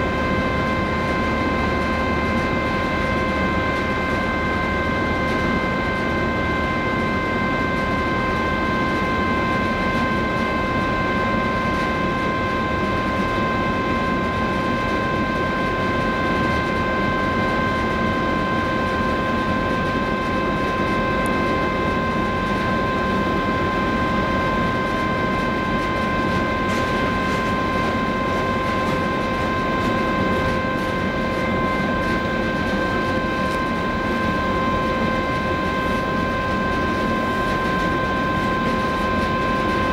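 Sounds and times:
high steady machinery tones: 0.0s - 39.9s.

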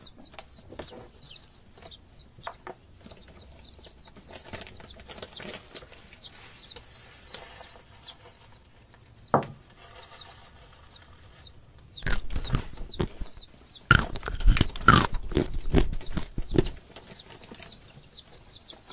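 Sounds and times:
baby chicks cheeping: 0.0s - 18.9s
loud crisp crunches: 12.0s - 16.8s.

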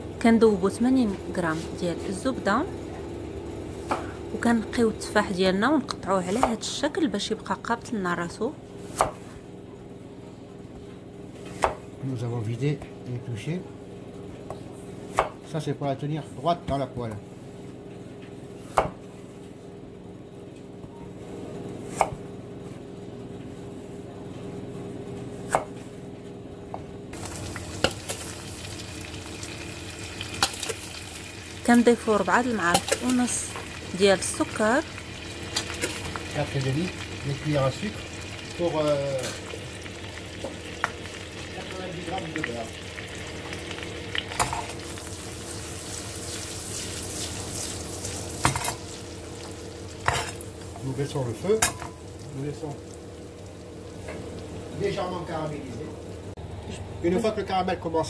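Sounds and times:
butter sizzling in frying pan: 27.2s - 55.1s.

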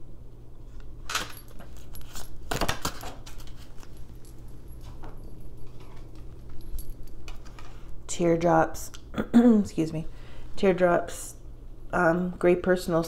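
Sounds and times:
cards rustling and clicking: 0.7s - 4.0s
light jingling clinks: 3.8s - 7.3s.

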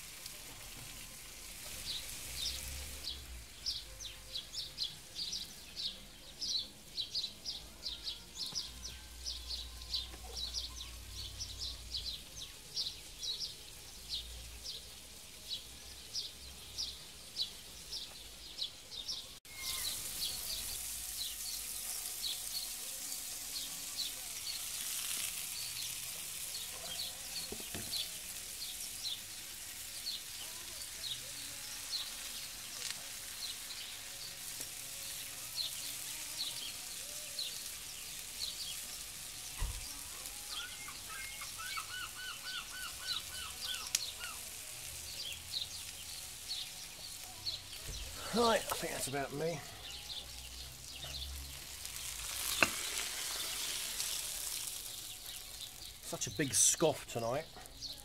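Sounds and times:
sausages sizzling in a frying pan: 0.0s - 58.0s
bird chirping: 1.7s - 22.7s, 36.4s - 44.5s.

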